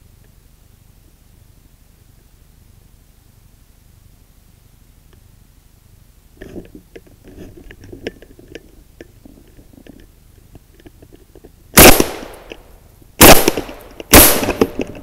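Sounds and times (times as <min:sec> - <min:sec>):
faint rustling: 0:06.4 - 0:11.6
loud gunshots with echo: 0:11.8 - 0:12.4, 0:13.2 - 0:15.0.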